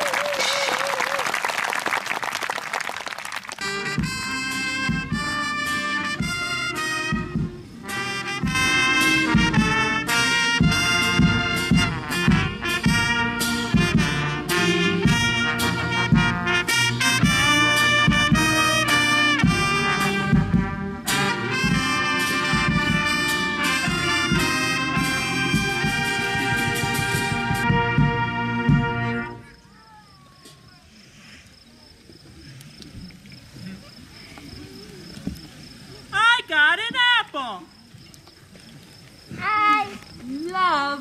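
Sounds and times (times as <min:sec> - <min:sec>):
brass band playing: 0:03.5 - 0:29.6.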